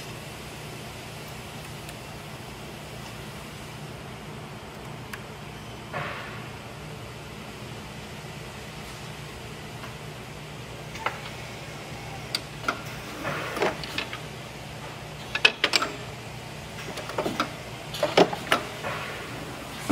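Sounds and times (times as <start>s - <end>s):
steady machine hum: 0.0s - 19.9s
machine clamps clicking and clunking: 12.2s - 14.4s, 15.1s - 16.2s, 16.8s - 19.9s.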